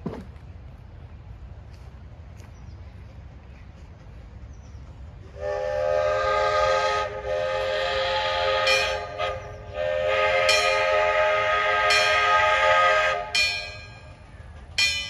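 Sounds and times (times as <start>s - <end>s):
steam hiss: 5.3s - 13.4s
steam locomotive whistle: 5.3s - 13.8s.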